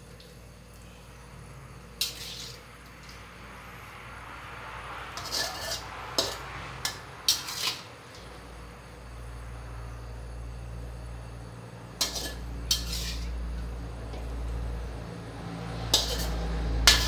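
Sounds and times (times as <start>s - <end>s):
utensils scraping a wok: 1.9s - 3.2s, 5.1s - 8.4s, 11.9s - 14.4s, 15.6s - 17.0s.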